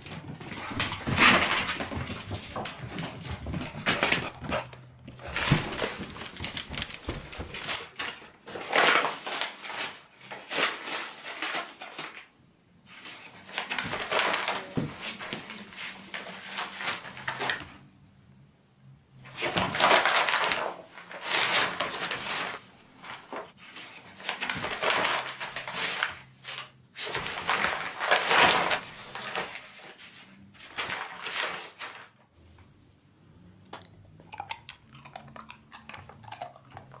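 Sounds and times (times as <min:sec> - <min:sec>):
paper bags crackling and tearing: 0:00.0 - 0:12.3, 0:12.9 - 0:17.7, 0:19.3 - 0:32.1
dog chewing paper: 0:19.3 - 0:32.1.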